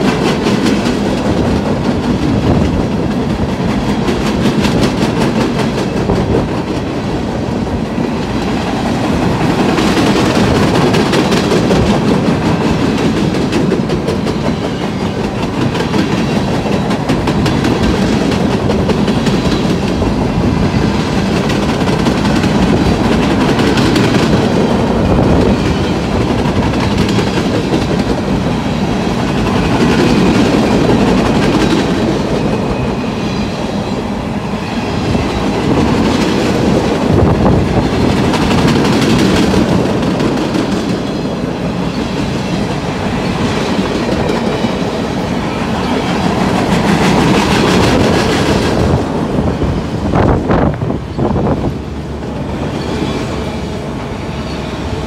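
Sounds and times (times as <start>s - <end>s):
freight train rumble: 0.0s - 55.0s
wheels clickety-clack on rails: 0.0s - 55.0s.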